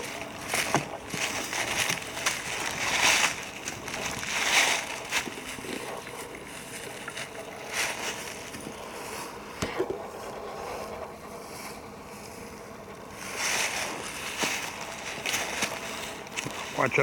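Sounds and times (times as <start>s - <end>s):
footsteps in dry leaves: 0.0s - 9.4s, 11.4s - 17.0s.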